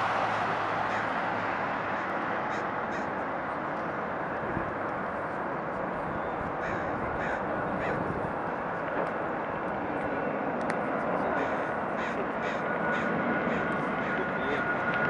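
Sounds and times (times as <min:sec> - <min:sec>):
distant jet engines roaring: 0:00.0 - 0:15.0.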